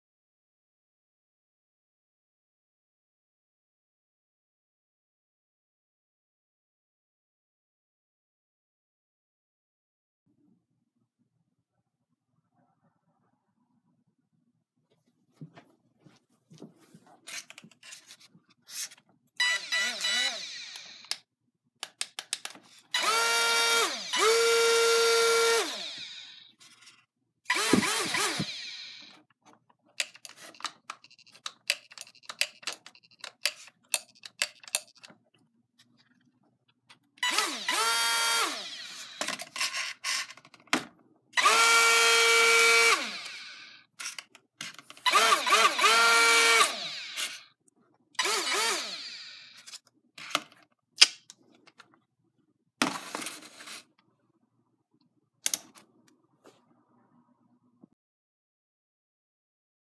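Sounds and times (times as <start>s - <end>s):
electric motor propeller whine: 23.0s - 26.5s.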